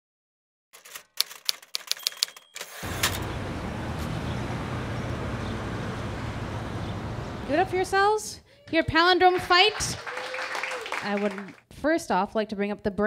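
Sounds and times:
typewriter clacks: 0.8s - 3.2s
city ambience: 2.8s - 8.3s.

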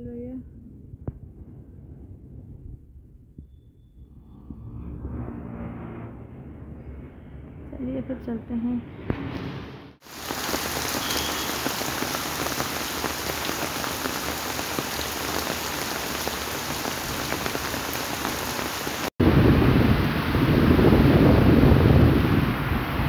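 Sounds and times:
deep rushing noise: 0.6s - 10.0s
heavy rain falling: 10.0s - 23.0s.

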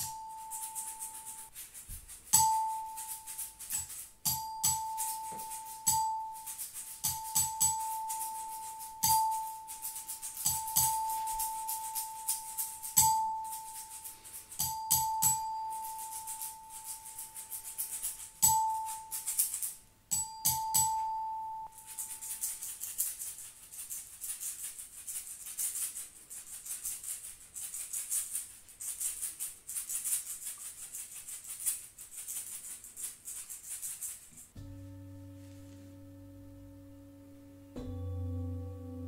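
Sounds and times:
shaker rattling: 0.0s - 34.6s
bell-like metal instrument struck: 20.1s - 21.7s, 34.6s - 39.0s.

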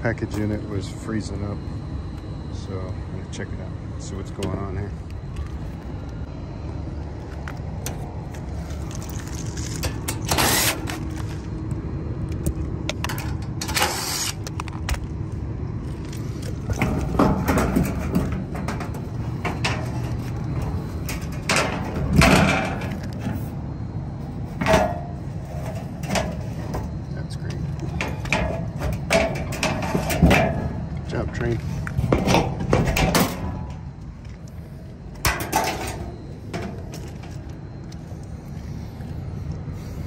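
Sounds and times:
steady low rumble: 0.0s - 40.0s
metal panel clanks and rattles: 16.6s - 23.4s, 24.6s - 27.0s, 27.8s - 33.8s, 35.2s - 37.4s.

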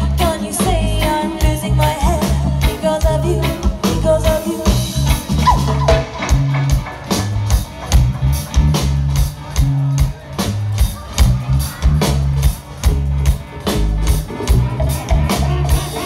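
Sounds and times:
woman singing: 0.0s - 5.0s
reggae band playing: 0.0s - 16.0s.

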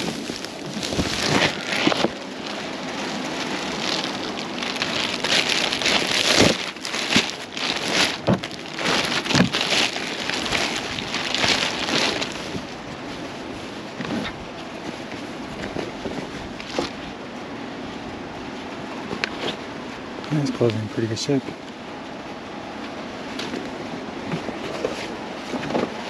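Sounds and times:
plastic bag rustling: 0.0s - 17.2s, 23.2s - 26.0s.

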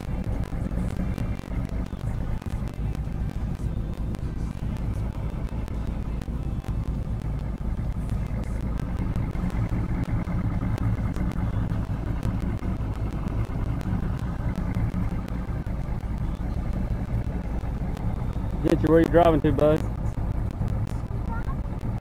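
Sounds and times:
outboard motor running: 0.0s - 22.0s.

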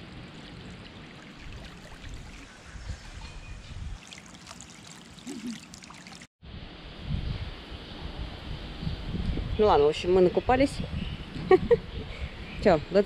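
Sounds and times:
pool water running and splashing: 0.0s - 2.7s, 4.0s - 6.3s
water trickling: 0.0s - 6.3s.

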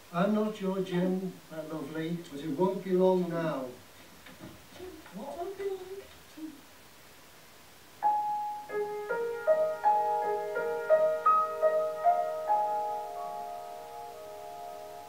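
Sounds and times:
slow solo piano melody: 8.0s - 15.0s.

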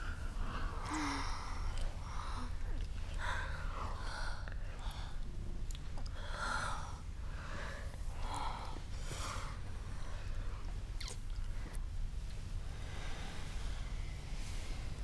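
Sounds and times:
woman breathing heavily: 0.0s - 5.2s, 6.2s - 10.6s
steady low hum: 0.0s - 15.0s.

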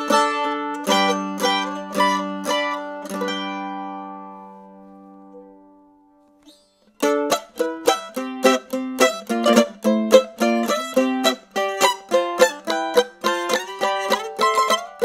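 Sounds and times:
mandolin chord strokes: 0.0s - 15.0s.

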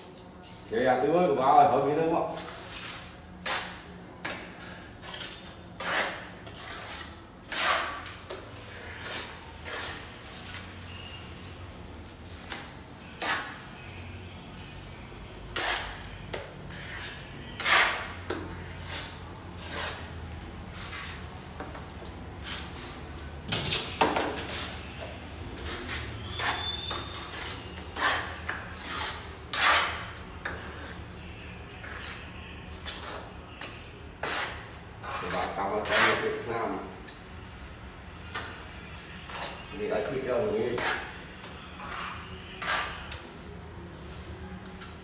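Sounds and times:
trowel scraping and slapping mortar: 25.6s - 30.9s.

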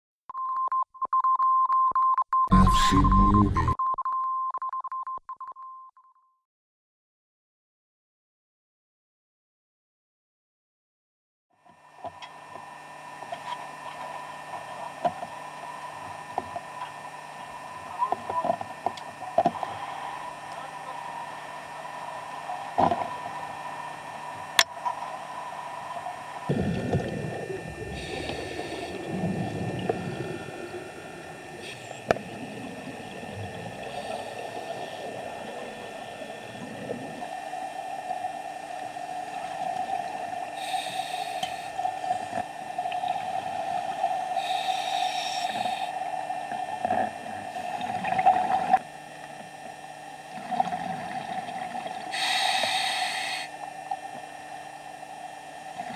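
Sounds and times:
steady hum: 2.5s - 3.8s, 11.7s - 55.9s
diver inhaling through regulator: 19.5s - 20.5s, 26.5s - 32.1s, 33.8s - 35.3s, 40.6s - 42.4s, 44.3s - 46.1s, 52.1s - 53.6s
bubbling exhalations underwater: 26.5s - 31.1s, 50.3s - 52.3s.

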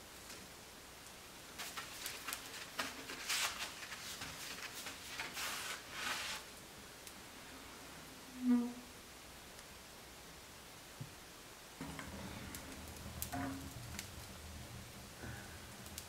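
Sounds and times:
dry tinder crackling and rustling: 0.0s - 7.2s, 11.8s - 16.0s.

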